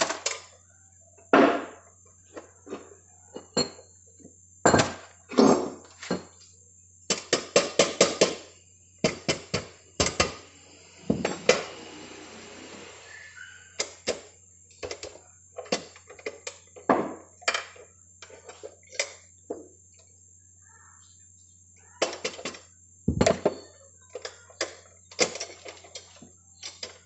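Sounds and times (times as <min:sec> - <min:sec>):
tool scraping metal: 0:09.5 - 0:14.1.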